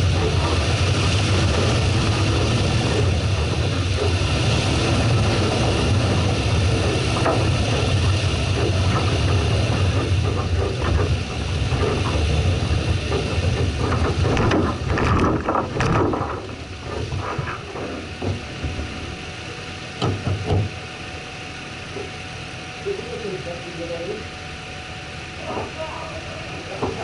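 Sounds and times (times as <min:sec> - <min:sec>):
vehicle body rattling over bumps: 0:00.0 - 0:19.1
car engine at low revs: 0:00.0 - 0:27.0.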